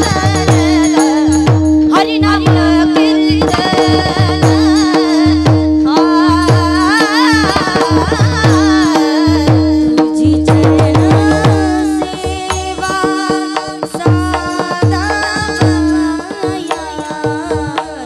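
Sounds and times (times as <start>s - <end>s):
hand cymbals struck: 0.0s - 18.0s
hand drum strokes: 0.0s - 18.0s
woman singing devotional song: 0.0s - 18.0s.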